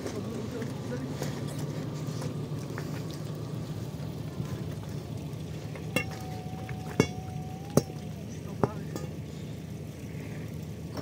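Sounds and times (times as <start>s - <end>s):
metal poles clanking: 6.0s - 6.4s, 7.0s - 8.0s, 8.6s - 9.2s.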